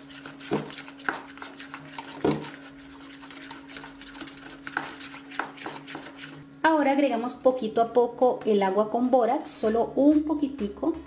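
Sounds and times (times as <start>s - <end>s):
stick scraping in plastic bowl: 0.0s - 6.4s.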